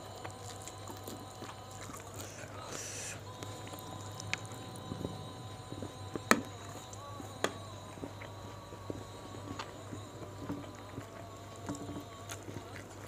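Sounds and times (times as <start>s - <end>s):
chewing clicks and lip smacks: 0.0s - 7.0s
steady low hum: 0.0s - 13.0s.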